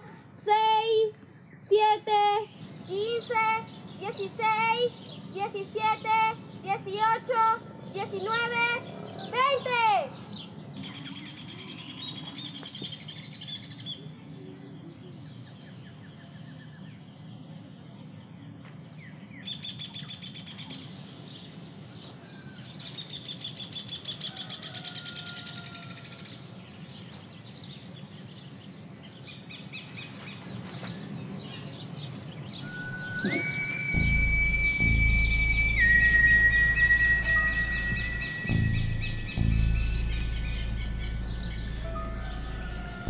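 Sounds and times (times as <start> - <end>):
birds chirping and trilling: 0.0 - 43.0
low background rumble: 32.2 - 43.0.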